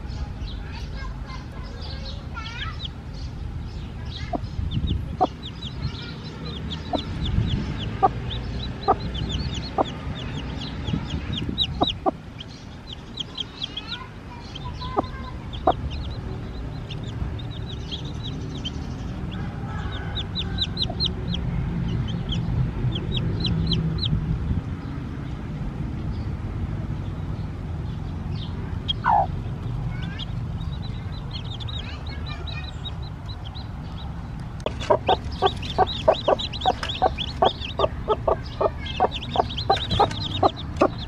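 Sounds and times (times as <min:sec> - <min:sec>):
chicks peeping: 0:00.0 - 0:25.1, 0:27.0 - 0:41.0
hen clucking: 0:04.2 - 0:24.1, 0:28.8 - 0:33.6, 0:34.6 - 0:41.0.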